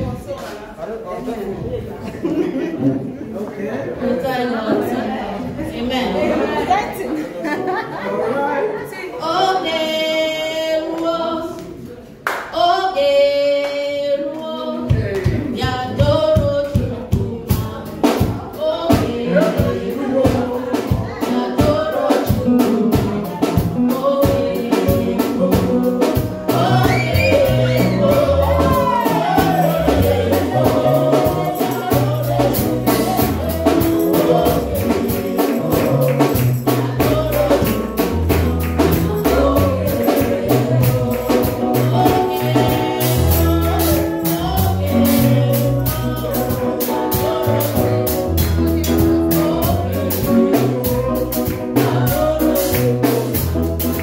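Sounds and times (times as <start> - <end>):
voices singing: 4.0 - 54.0
bass: 14.0 - 54.0
drum beat: 14.9 - 54.0.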